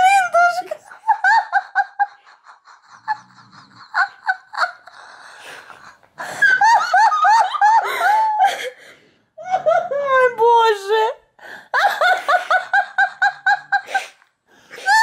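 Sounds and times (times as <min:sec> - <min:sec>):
girl laughing: 0:00.0 - 0:05.2, 0:05.8 - 0:08.8.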